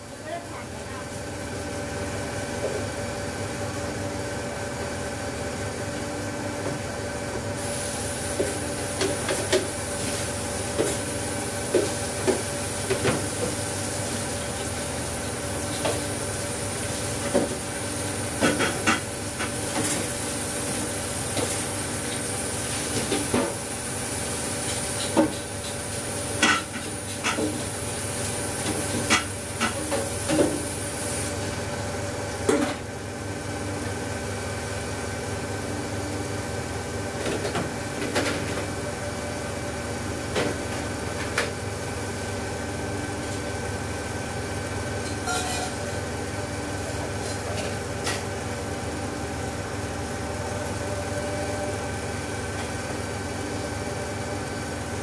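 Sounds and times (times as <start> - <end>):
dishes and pots clinking: 45.1 - 45.8.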